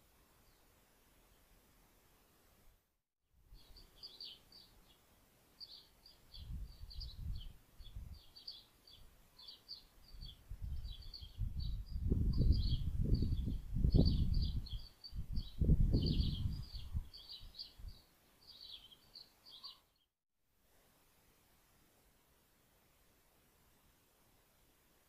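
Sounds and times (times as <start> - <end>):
small birds chirping: 3.5 - 20.1.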